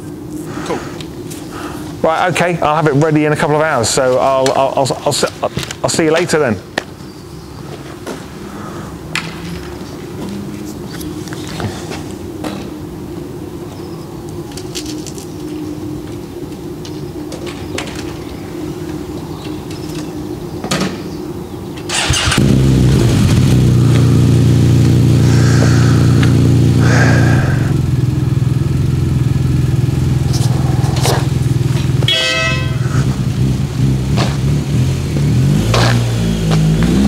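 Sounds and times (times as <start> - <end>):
motorcycle engine starting and idling: 21.8 - 37.0
motorcycle horn honk: 32.0 - 33.1.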